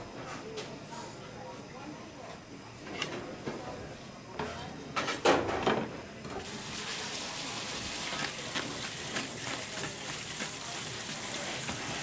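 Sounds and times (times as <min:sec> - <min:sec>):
hose spray hitting a colander: 0:06.4 - 0:12.0.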